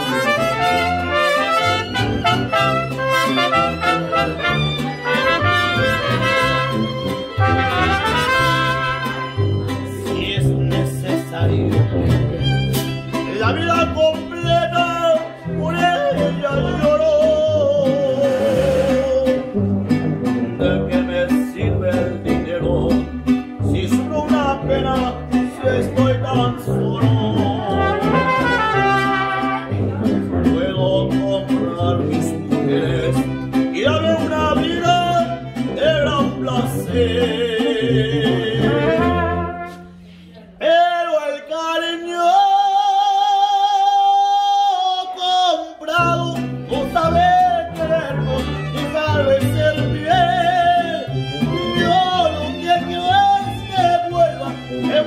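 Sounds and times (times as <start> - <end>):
man singing: 0.0 - 19.6, 20.2 - 39.8, 40.6 - 55.0
mariachi band playing: 0.0 - 55.0.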